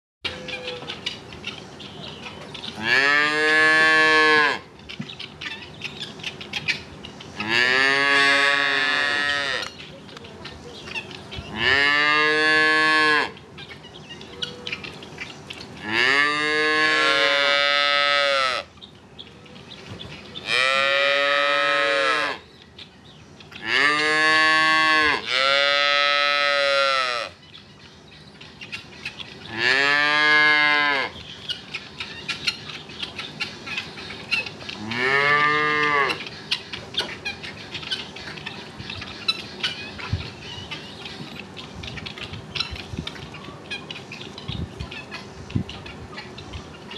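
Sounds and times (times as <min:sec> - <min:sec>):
calves mooing: 0:02.8 - 0:04.7, 0:07.4 - 0:09.7, 0:11.5 - 0:13.4, 0:15.8 - 0:18.7, 0:20.5 - 0:22.4, 0:23.6 - 0:27.4, 0:29.5 - 0:31.2, 0:34.8 - 0:36.2.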